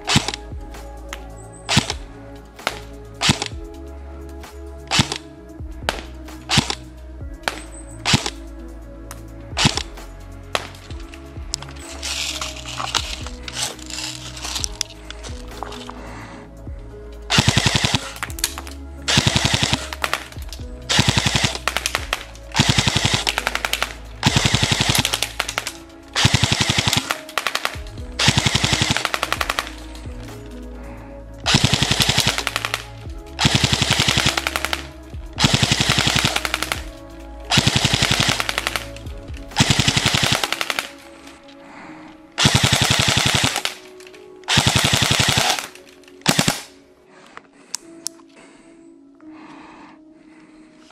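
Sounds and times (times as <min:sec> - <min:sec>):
background music: 0:00.0 - 0:50.9
airsoft gun full auto bursts: 0:17.3 - 0:29.8, 0:31.5 - 0:34.8, 0:35.4 - 0:36.9, 0:37.5 - 0:39.0, 0:39.6 - 0:40.9, 0:42.4 - 0:43.8, 0:44.5 - 0:46.7.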